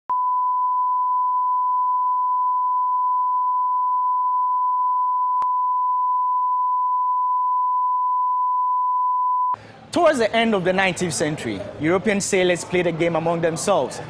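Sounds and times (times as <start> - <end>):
steady test tone: 0.1 - 9.6.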